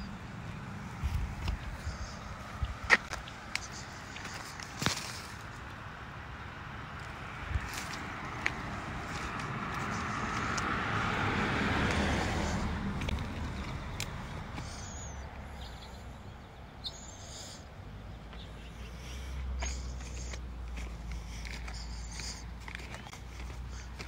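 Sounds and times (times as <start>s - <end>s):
heavy close breathing: 0.9s - 5.1s, 8.4s - 13.6s, 14.3s - 24.0s.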